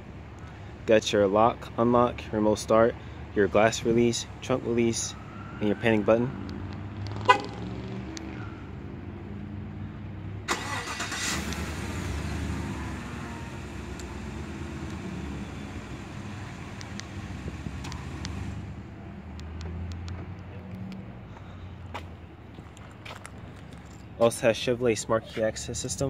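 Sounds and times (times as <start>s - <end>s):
car engine idling: 10.4s - 20.6s
engine starter cranking: 10.5s - 12.0s.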